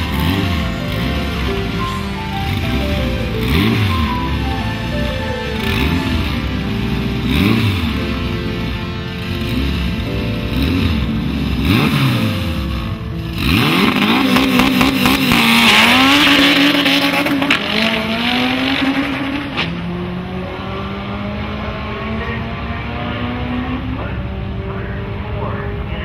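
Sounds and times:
car engine revving: 0.0 - 26.0
tire noise: 0.0 - 26.0.

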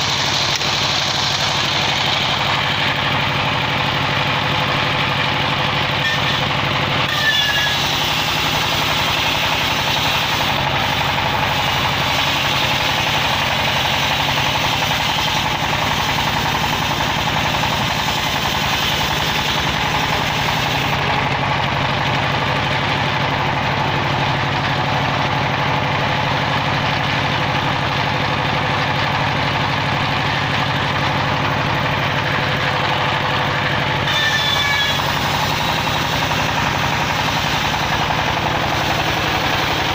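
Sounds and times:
saw engine running under load: 0.0 - 39.9
circular saw ripping log: 6.0 - 21.1, 33.9 - 39.9.

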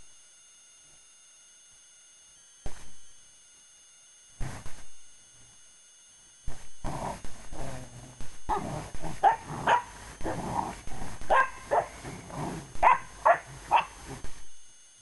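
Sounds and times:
dogs growling: 6.8 - 14.2
dogs barking: 8.5 - 10.4, 11.3 - 14.2.

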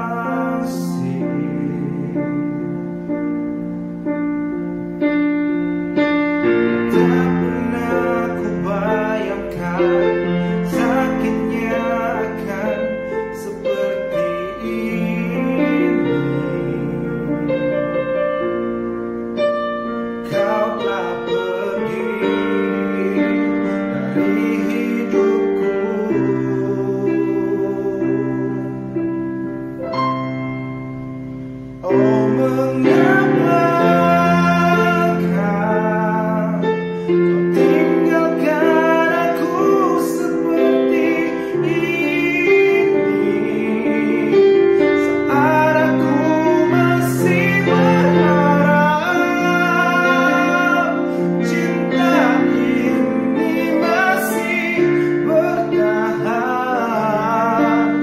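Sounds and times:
man singing pop ballad: 0.0 - 2.7, 6.8 - 18.4, 20.2 - 29.0, 31.8 - 58.0
piano ballad accompaniment: 0.0 - 58.0.

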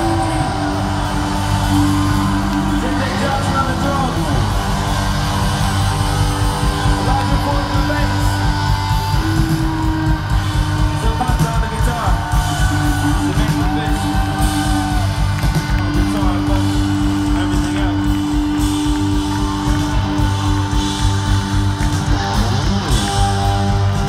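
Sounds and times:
live rock band playing: 0.0 - 24.0.

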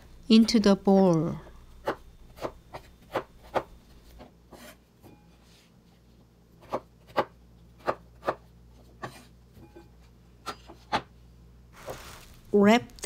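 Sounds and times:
knife cutting potato on wooden board: 1.8 - 4.8, 6.6 - 9.3.

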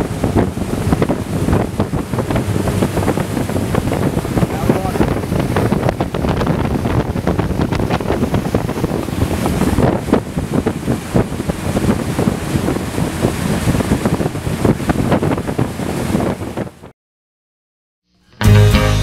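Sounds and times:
wind buffeting microphone: 0.0 - 16.9.

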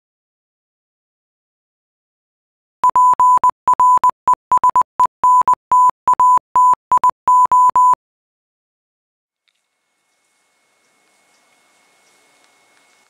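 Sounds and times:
morse code beeps: 2.8 - 8.0.

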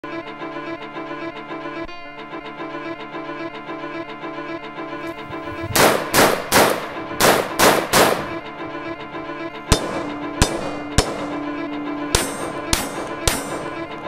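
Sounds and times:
background music with strings: 0.0 - 14.0
gunshots: 5.3 - 8.5.

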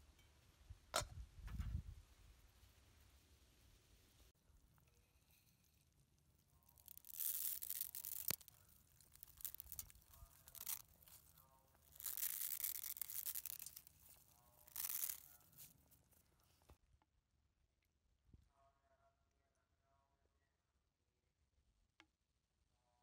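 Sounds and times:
dry noodles crackling and snapping: 4.6 - 16.7.

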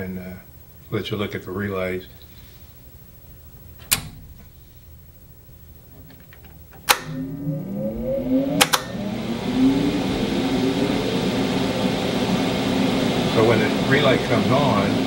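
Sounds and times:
switch click: 3.8 - 4.3, 6.4 - 7.2, 8.6 - 8.9
relay clicks: 6.0 - 7.2
power pushbutton clacking: 6.1 - 7.2
motor spinning up with rising hum: 6.9 - 15.0
steady fan whoosh: 7.0 - 15.0.

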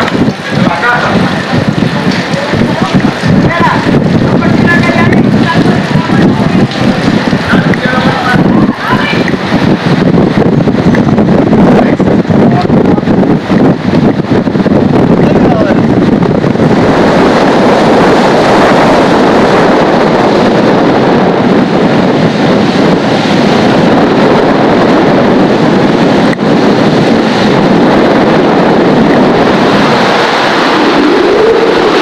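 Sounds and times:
heavy surf breaking: 0.0 - 32.0
wind buffeting microphone: 0.0 - 32.0.

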